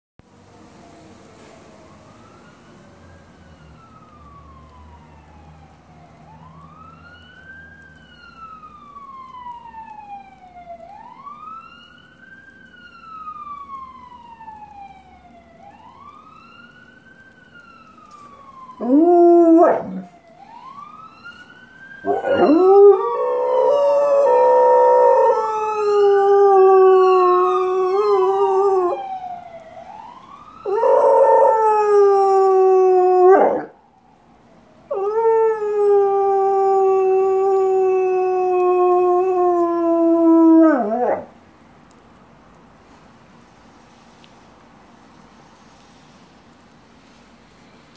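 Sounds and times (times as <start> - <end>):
faint siren wailing: 0.4 - 43.2
dog howling: 18.8 - 20.1, 22.0 - 29.1, 30.6 - 33.7, 34.9 - 41.3.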